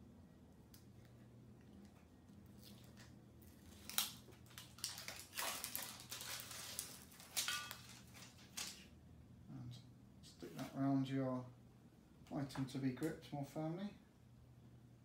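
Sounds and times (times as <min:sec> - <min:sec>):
rustling crackles of backing: 0:00.6 - 0:09.0
tape backing crackling as peeled: 0:00.7 - 0:08.9.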